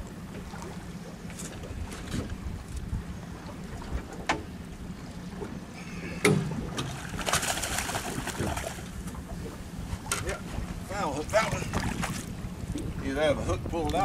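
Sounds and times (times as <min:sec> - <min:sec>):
steady low hum: 0:00.0 - 0:13.8
wind on microphone: 0:01.5 - 0:04.3, 0:05.0 - 0:14.0
fish splashing at surface: 0:06.7 - 0:08.9.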